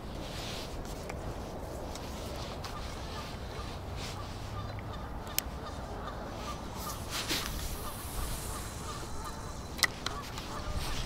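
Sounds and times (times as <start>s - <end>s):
wind rumbling on microphone: 0.0s - 11.0s
geese honking: 2.7s - 11.0s.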